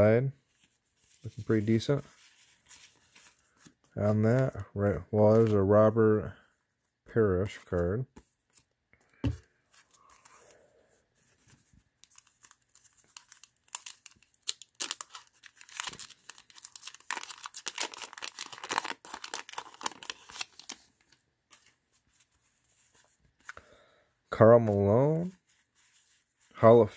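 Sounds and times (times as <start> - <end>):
wrapper crinkling: 12.0 - 23.0
wax paper tearing: 12.2 - 20.9.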